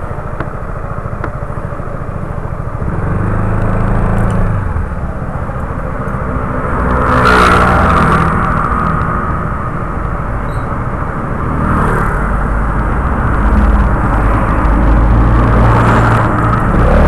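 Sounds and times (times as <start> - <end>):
small scooter engine running: 0.0 - 6.6
loud rushing noise: 2.8 - 17.0.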